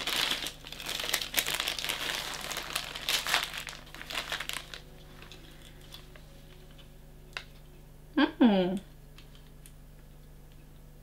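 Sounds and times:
plastic bag crinkling: 0:00.0 - 0:06.8.

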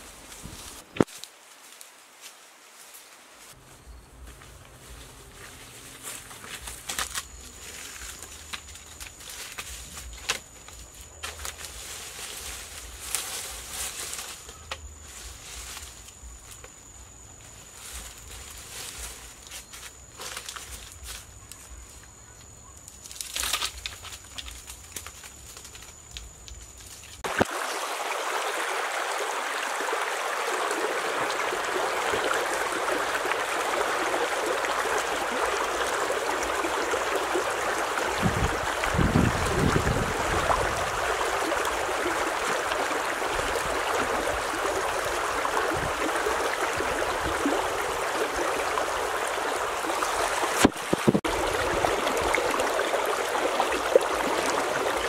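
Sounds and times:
stream rushing over stones: 0:27.2 - 0:55.0.

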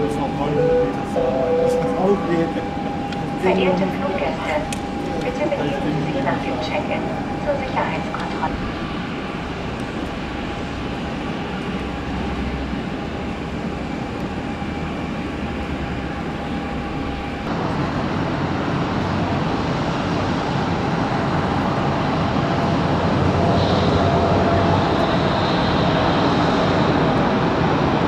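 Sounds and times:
jet engines rumbling and whining: 0:00.0 - 0:28.0.

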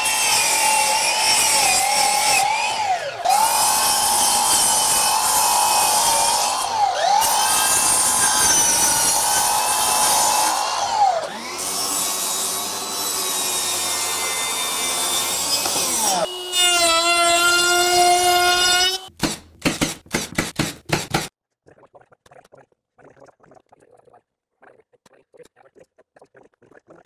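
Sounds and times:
miter saw cutting wood: 0:00.0 - 0:19.1.

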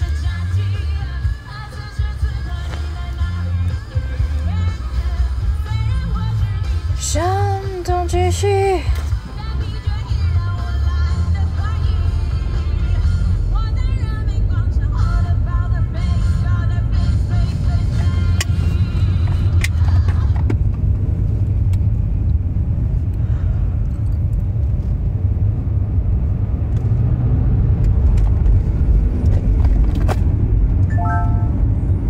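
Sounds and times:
car interior rumble: 0:00.0 - 0:32.0
short beeping tone: 0:30.9 - 0:31.8.

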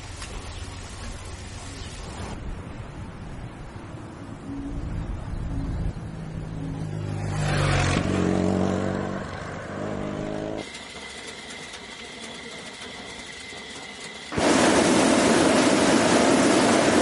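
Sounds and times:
vehicle engine droning: 0:04.3 - 0:14.6.

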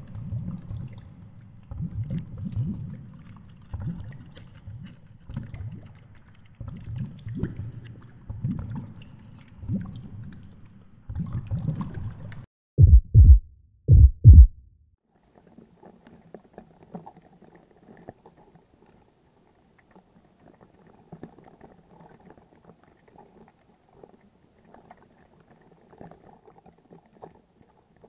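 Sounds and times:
deep booming impacts: 0:12.8 - 0:14.8.

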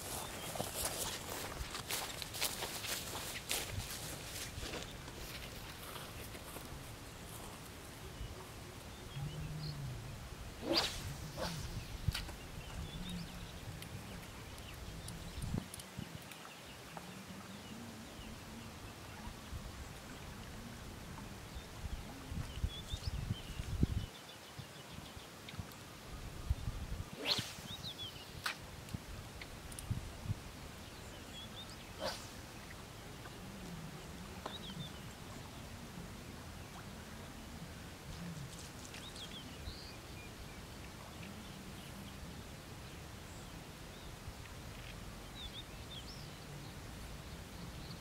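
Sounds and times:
wind rumble on microphone: 0:08.2 - 0:16.3, 0:18.3 - 0:25.2, 0:26.1 - 0:27.8, 0:28.9 - 0:30.8
brief swish: 0:10.6 - 0:12.3, 0:27.1 - 0:27.8, 0:32.0 - 0:32.4.

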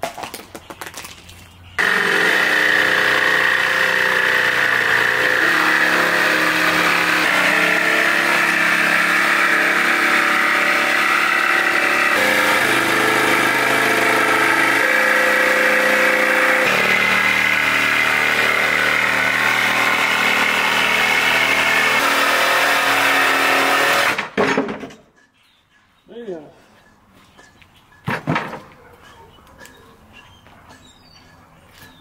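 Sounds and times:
jigsaw cutting wood: 0:01.8 - 0:24.4.

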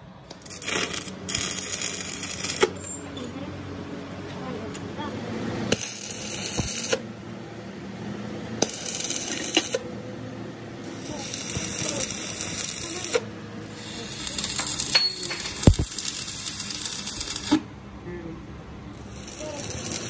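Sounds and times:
welding arc crackling: 0:00.2 - 0:03.0, 0:05.4 - 0:07.2, 0:08.2 - 0:17.7, 0:18.9 - 0:20.0.

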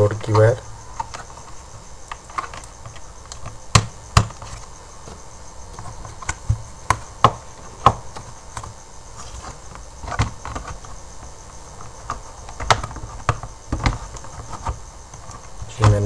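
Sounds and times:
plastic casing tapping: 0:02.1 - 0:08.8, 0:11.8 - 0:16.0.

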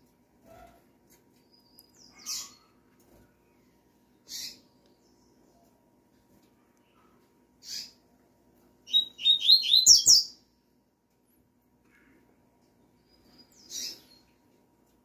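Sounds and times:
bird calling: 0:08.9 - 0:10.3
bird song of whistled notes: 0:08.9 - 0:10.4.

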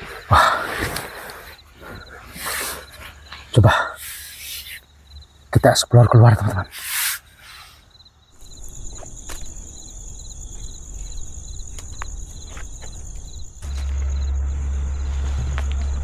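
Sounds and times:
crickets chirping: 0:00.0 - 0:16.0
footsteps on dry leaves: 0:08.4 - 0:16.0
steady low rumble: 0:08.4 - 0:16.0.

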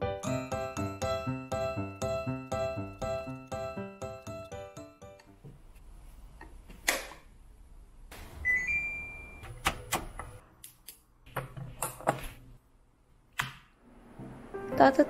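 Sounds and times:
two-tone rising electronic beep: 0:08.4 - 0:09.4.

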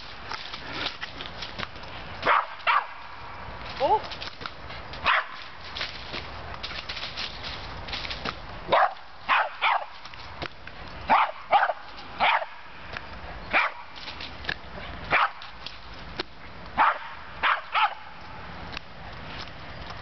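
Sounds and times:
small dog barking: 0:02.3 - 0:03.0, 0:05.0 - 0:05.4, 0:08.7 - 0:09.9, 0:11.1 - 0:12.6, 0:13.5 - 0:13.8, 0:15.1 - 0:15.4, 0:16.8 - 0:18.1.

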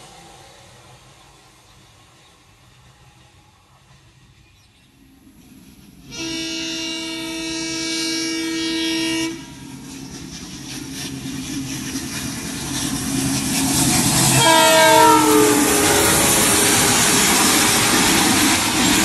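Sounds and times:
train rumbling: 0:00.0 - 0:19.0
locomotive horn blast: 0:06.1 - 0:09.7, 0:14.3 - 0:17.4.

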